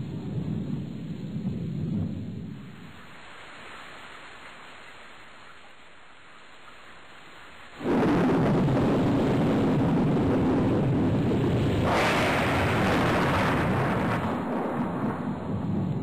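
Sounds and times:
thunder rumble: 0.0 - 3.1, 7.8 - 16.0
heavy rain hiss: 0.0 - 16.0.

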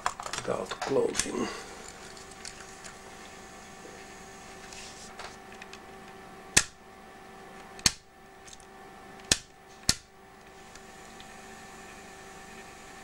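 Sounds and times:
cassette player motor hum: 0.0 - 13.0.

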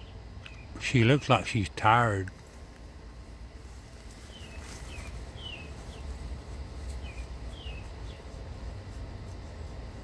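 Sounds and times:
songbird calling: 0.0 - 1.3, 4.2 - 6.2, 6.9 - 8.4.

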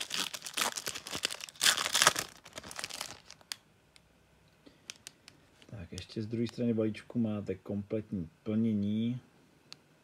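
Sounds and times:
wrapper crinkling and tearing: 0.0 - 3.6, 4.8 - 5.2.

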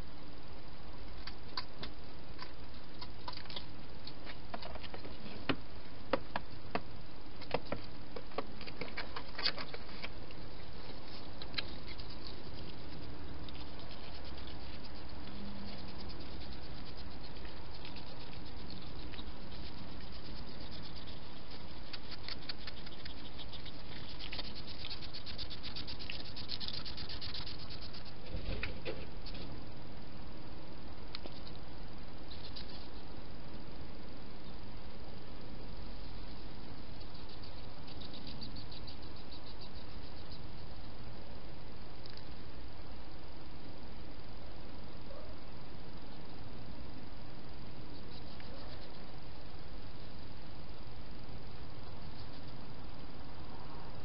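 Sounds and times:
steady hiss: 0.0 - 54.0
hedgehog crunching dry food: 8.6 - 29.4.

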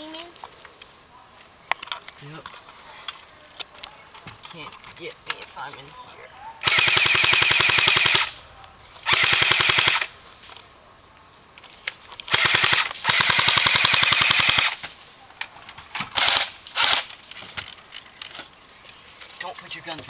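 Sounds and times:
airsoft guns firing bursts: 6.6 - 8.4, 9.0 - 10.1, 12.3 - 14.8, 16.1 - 17.1.

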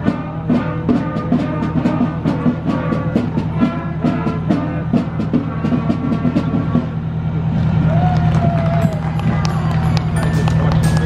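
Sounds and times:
drums playing march beat: 0.0 - 7.4, 8.8 - 11.0
brass band playing: 0.0 - 7.5.

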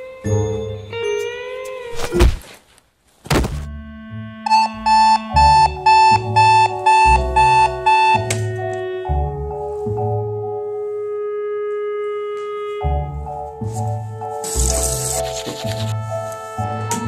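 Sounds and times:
background music: 0.0 - 2.3, 3.4 - 17.0
alarm clock beeping: 4.5 - 8.3.

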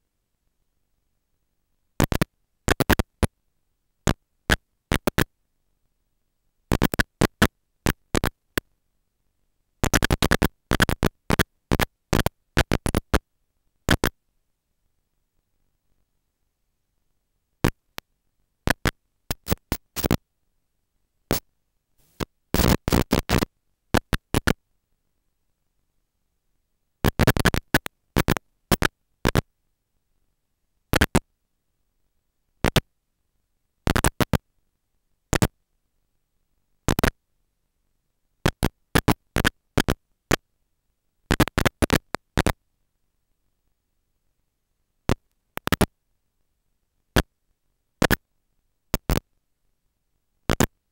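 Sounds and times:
crackling static bursts: 1.9 - 3.4, 4.0 - 5.4, 6.6 - 14.3, 17.0 - 20.3, 21.2 - 24.6, 27.0 - 29.5, 30.9 - 31.3, 32.5 - 32.9, 33.8 - 34.4, 35.2 - 35.6, 36.8 - 37.2, 38.4 - 40.5, 41.2 - 42.6, 45.0 - 46.0, 47.1 - 47.3, 48.0 - 48.2, 48.9 - 49.3, 50.4 - 50.8.

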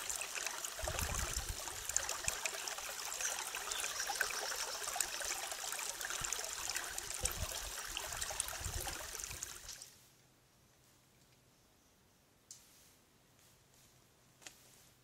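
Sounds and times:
stream trickling and splashing: 0.0 - 10.0.

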